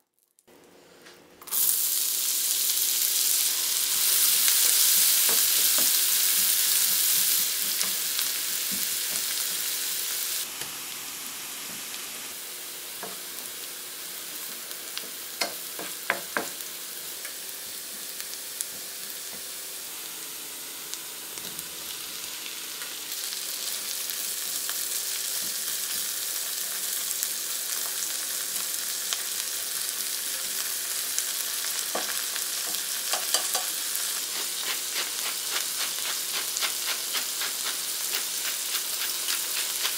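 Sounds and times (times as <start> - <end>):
onion sizzling in oil: 1.4 - 39.9.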